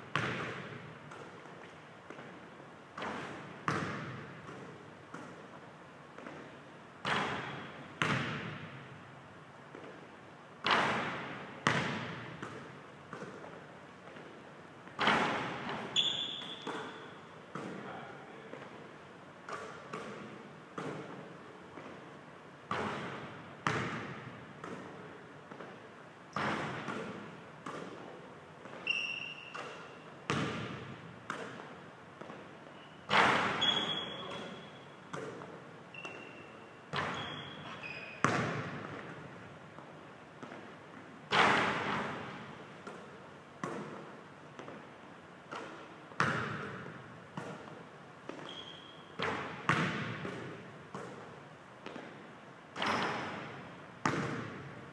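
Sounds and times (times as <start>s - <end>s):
basketball bouncing on wooden floor: 0.1s - 1.3s, 3.0s - 5.3s, 7.0s - 8.8s, 10.6s - 14.3s, 22.7s - 25.6s, 28.6s - 32.4s, 36.9s - 39.3s, 45.5s - 51.2s, 51.8s - 52.1s, 52.8s - 54.7s
sneaker squeaks: 6.2s - 8.6s, 15.0s - 17.9s, 28.6s - 31.6s, 32.2s - 39.1s, 45.5s - 50.4s, 52.8s - 54.6s.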